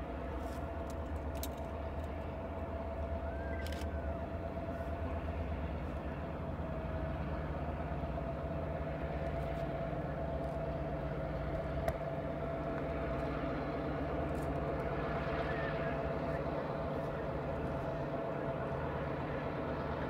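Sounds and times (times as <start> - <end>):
distant diesel locomotive drone: 0.0 - 20.0
high-pitched whine: 11.1 - 20.0.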